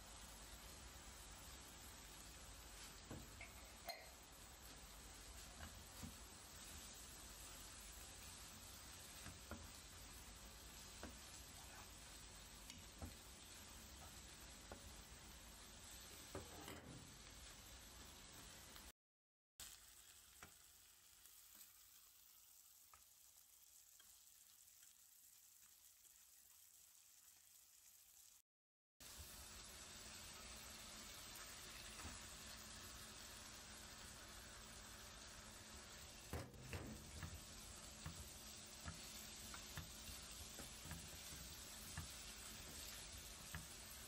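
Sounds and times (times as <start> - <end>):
faint steady hiss: 0.0 - 18.9, 29.0 - 44.0
noodles sizzling in a wok: 0.0 - 19.0, 19.6 - 28.4, 29.0 - 44.0
spoon tapping a pan: 3.1 - 4.2, 36.3 - 43.8.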